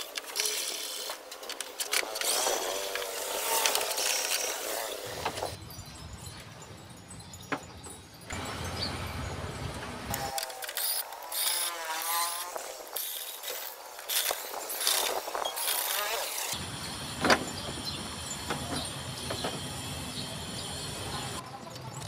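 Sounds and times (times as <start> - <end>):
tool clicks and squeaks: 0.0 - 5.6, 9.8 - 16.6, 17.2 - 22.0.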